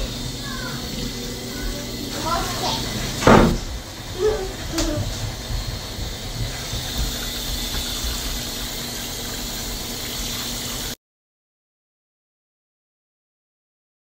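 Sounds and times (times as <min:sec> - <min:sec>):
running water rinsing hair: 0:00.0 - 0:11.0.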